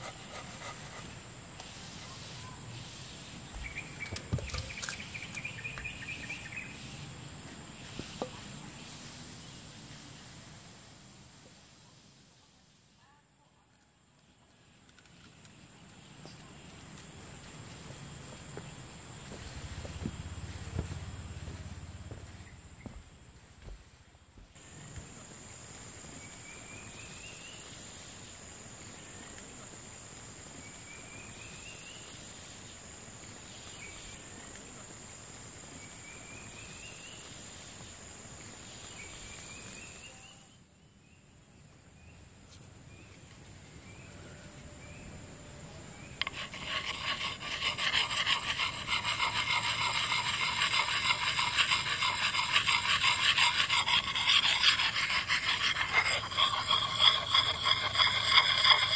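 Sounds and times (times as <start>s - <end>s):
high insect drone: 45.7s - 58.9s
knife scraping bark off stick: 46.2s - 58.9s.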